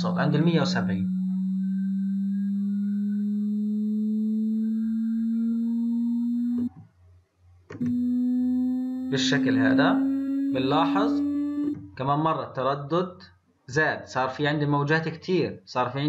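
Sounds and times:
sine wave tone gliding upward: 0.0s - 6.7s, 7.8s - 11.8s
clicks: 7.7s - 8.1s.

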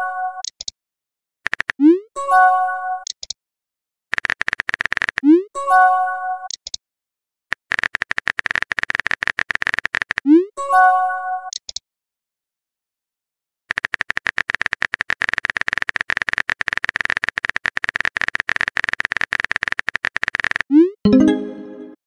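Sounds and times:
keyboard typing clicks: 0.4s - 0.7s, 1.5s - 1.9s, 6.5s - 6.8s, 7.6s - 10.4s, 11.5s - 11.8s
rising pop and chime: 21.1s - 22.0s.

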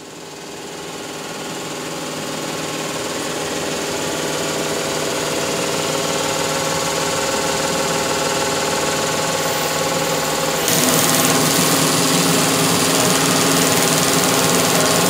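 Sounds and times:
shearing machine humming: 9.3s - 15.0s.

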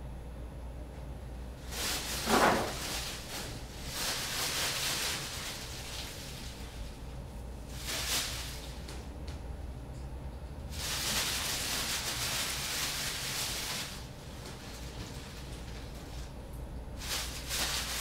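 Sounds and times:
steady low hum: 0.0s - 18.0s
paper rustling: 1.7s - 7.0s, 10.7s - 16.3s, 17.0s - 18.0s.

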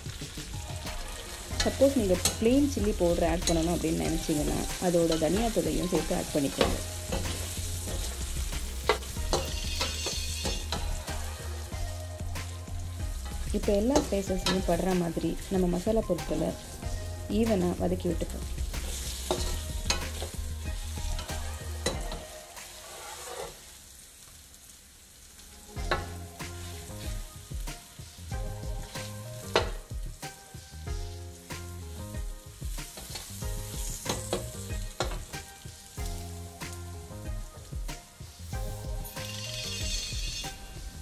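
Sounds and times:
banana slices sizzling in oil: 0.0s - 41.0s
spatula scraping a pan: 1.3s - 11.8s, 18.8s - 20.4s, 21.1s - 23.7s, 38.5s - 41.0s.

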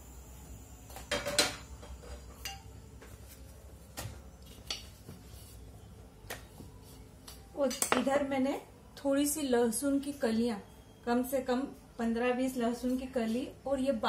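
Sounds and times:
metal bowls and utensils clinking: 1.1s - 2.8s.

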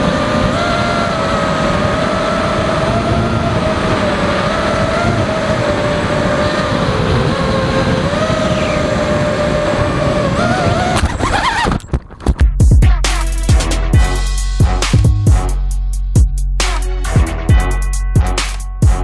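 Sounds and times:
drone motors whining: 0.0s - 12.3s
wind rushing: 0.0s - 12.6s.

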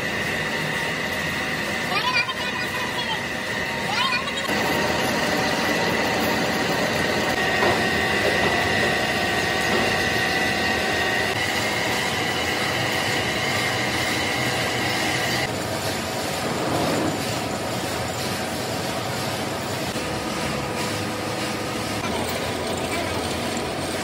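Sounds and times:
high machine whine: 0.0s - 24.0s
metal lathe cutting: 0.0s - 24.0s.

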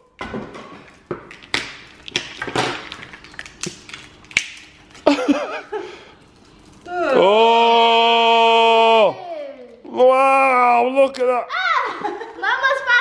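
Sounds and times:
slime squelching and popping: 0.8s - 5.1s.

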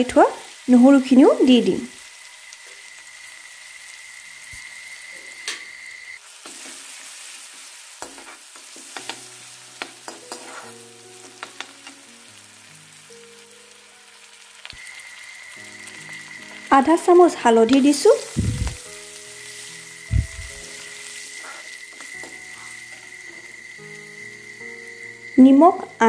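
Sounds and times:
garlic sizzling in hot oil: 0.0s - 26.0s
steel spoon scraping a pan: 6.4s - 9.2s, 9.8s - 10.9s, 20.5s - 23.6s.

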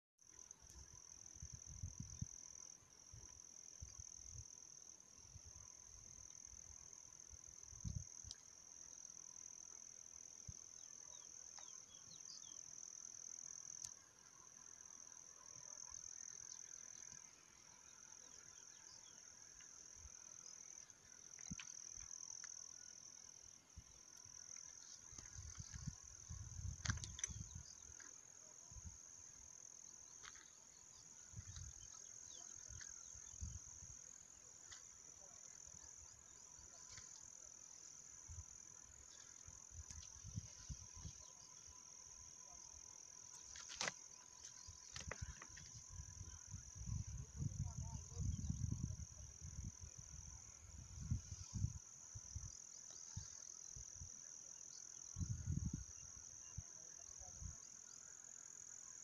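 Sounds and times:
crickets trilling: 0.3s - 59.0s.

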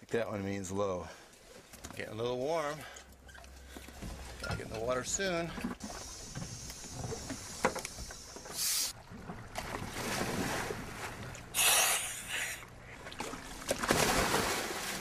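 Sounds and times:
divers splashing into water: 13.2s - 15.0s.

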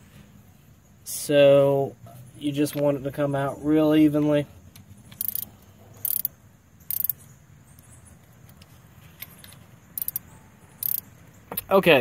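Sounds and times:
ratchet wrench clicking: 5.1s - 6.3s, 6.9s - 7.2s, 9.2s - 10.2s, 10.8s - 11.1s.

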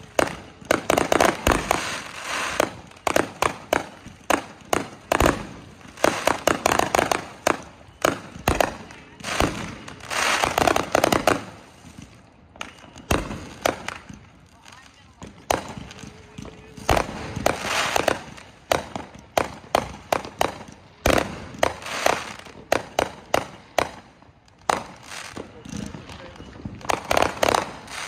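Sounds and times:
fireworks crackling: 0.0s - 28.0s
fireworks sharp bangs: 0.0s - 28.0s
fireworks deep booms: 15.1s - 24.0s.

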